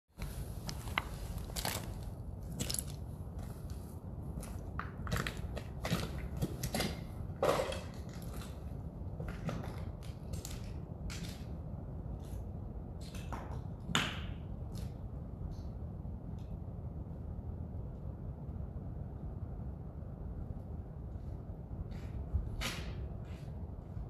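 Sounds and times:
footsteps crunching on rubble: 0.2 - 11.5
steady low rumble: 0.2 - 24.0.

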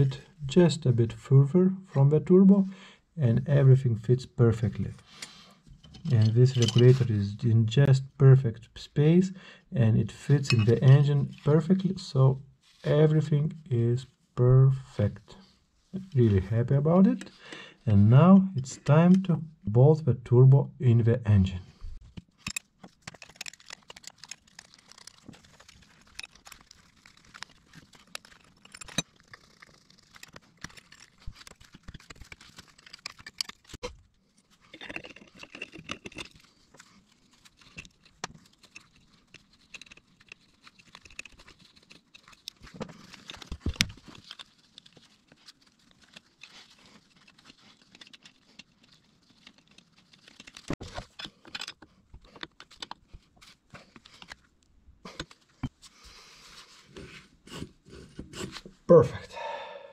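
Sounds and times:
metal parts clicking and knocking: 5.7 - 7.1, 22.1 - 34.0, 34.6 - 53.1.

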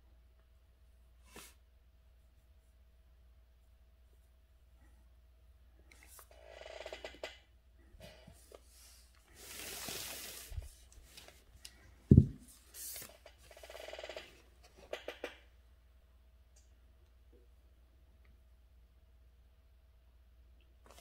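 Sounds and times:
paper rustling and swishing: 8.4 - 11.5, 12.1 - 13.2.

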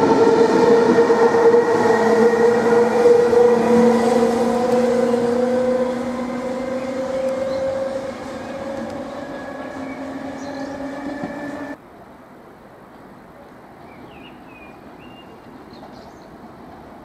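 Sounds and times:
electric locomotive humming: 0.0 - 11.8
station background noise: 0.0 - 11.8.

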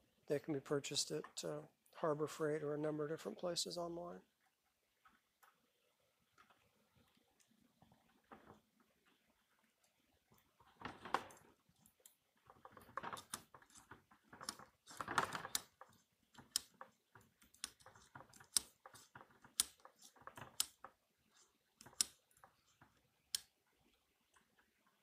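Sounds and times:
hands and wire rustling on plywood: 6.3 - 25.0
pliers twisting wire clicks: 17.5 - 20.8, 21.8 - 22.2.

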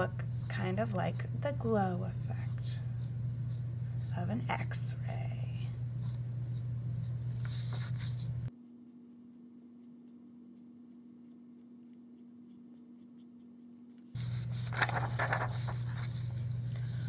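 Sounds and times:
low steady hum: 0.0 - 17.0
fingertip rubbing chalk on paper: 6.0 - 14.8.

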